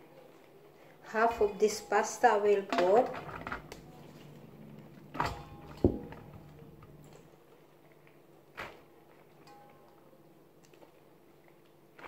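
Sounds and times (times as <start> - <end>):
colander knocking against metal pan: 5.3 - 6.4.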